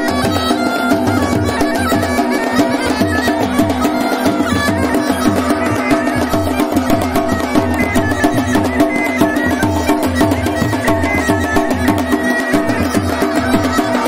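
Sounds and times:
bagpipe drones: 0.0s - 14.0s
bagpipe playing folk tune: 0.0s - 14.0s
drums beating a rhythm: 0.0s - 14.0s.

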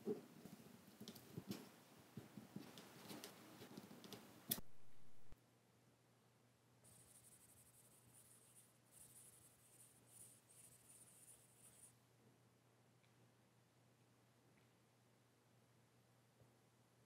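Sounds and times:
faint high scratchy strokes: 6.8s - 12.1s.

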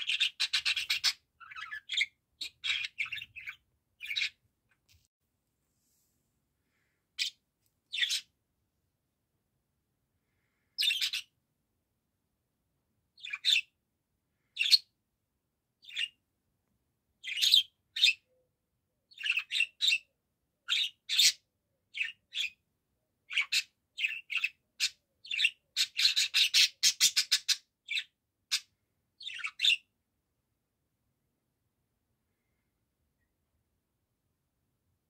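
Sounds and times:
budgerigar chirping: 0.0s - 4.4s, 7.2s - 8.3s, 10.8s - 11.3s, 13.2s - 13.7s, 17.2s - 18.3s, 19.1s - 20.1s, 20.7s - 22.6s, 23.3s - 29.9s.

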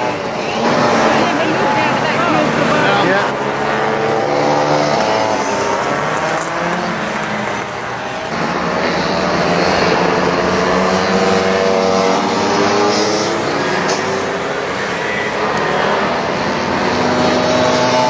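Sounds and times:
scooter engines revving: 0.0s - 18.0s.

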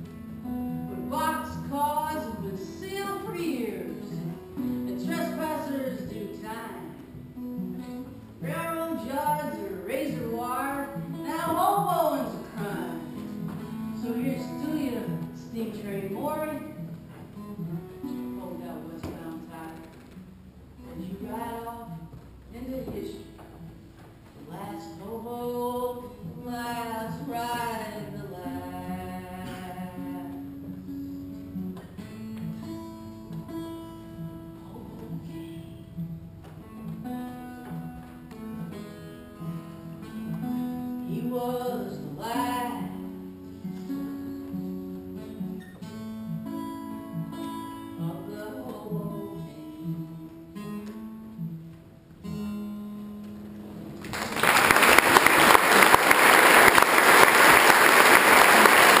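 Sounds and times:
acoustic guitar playing: 0.0s - 59.0s
person singing: 1.0s - 6.9s, 41.1s - 43.1s, 47.9s - 50.6s
audience applause: 54.0s - 59.0s.

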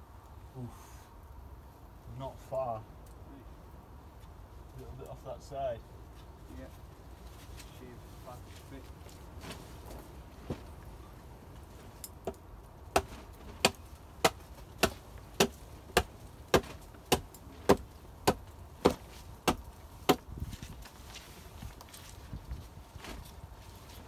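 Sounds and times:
axe chopping wood: 12.2s - 20.3s.

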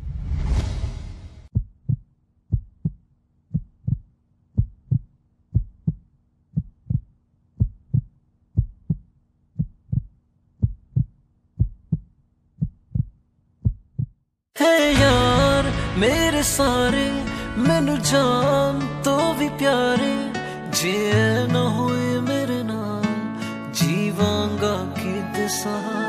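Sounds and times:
swell of noise: 0.0s - 1.5s, 14.9s - 19.5s
heartbeat thumps: 1.5s - 14.2s.

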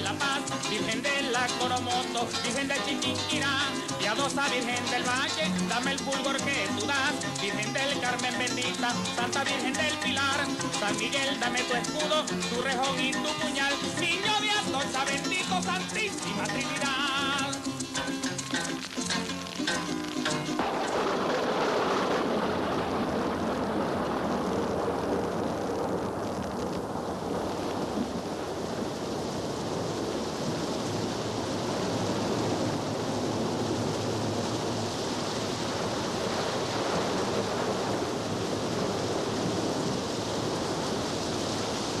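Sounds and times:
steady rushing noise: 26.9s - 42.0s.

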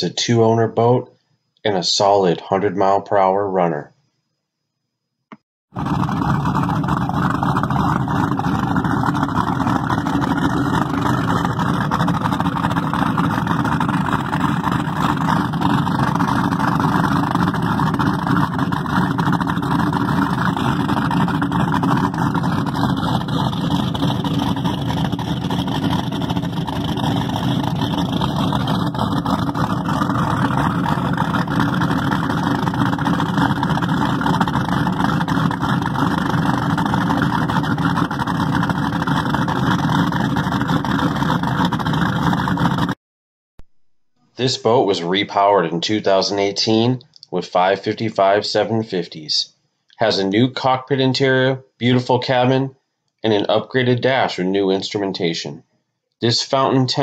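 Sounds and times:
exhaust water spraying: 5.7s - 43.0s
boat engines running steadily: 5.8s - 43.0s.

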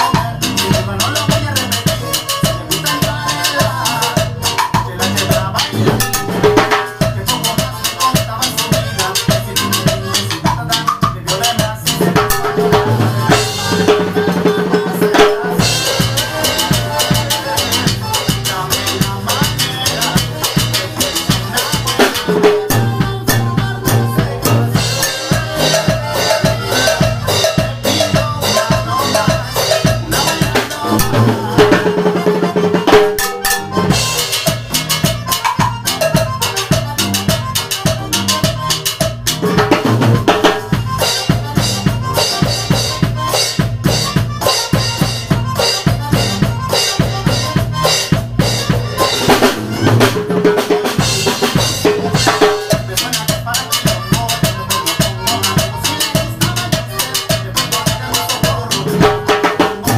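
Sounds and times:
timbales played with sticks: 12.4s - 59.9s.

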